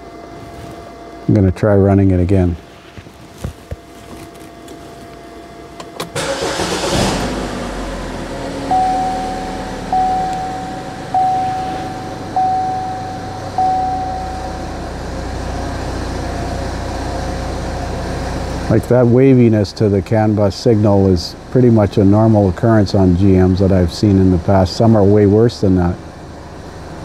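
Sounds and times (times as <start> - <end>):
car engine cranking and idling: 5.7 - 27.0
dashboard warning chime: 8.2 - 15.6.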